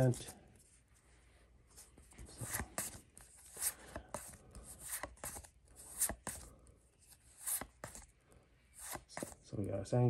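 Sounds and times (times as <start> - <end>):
cards sliding and flicking: 2.2 - 6.5, 7.1 - 8.1, 8.7 - 9.4.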